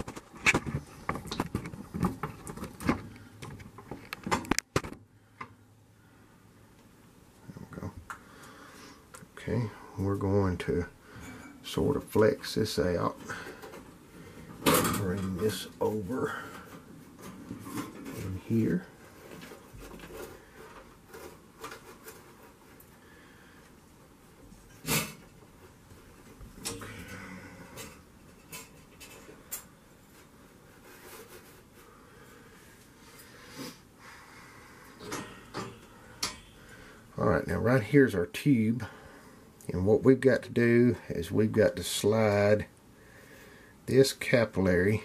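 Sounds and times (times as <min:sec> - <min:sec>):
tube rustling and scraping: 0:11.3 - 0:23.6, 0:27.0 - 0:33.9.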